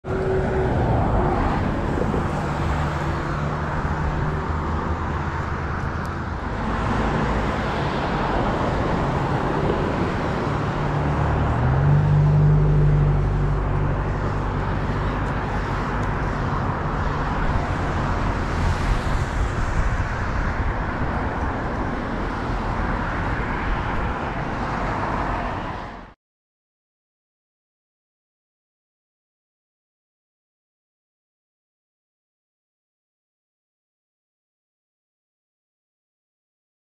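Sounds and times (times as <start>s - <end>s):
road traffic engine hum: 0.0s - 26.2s.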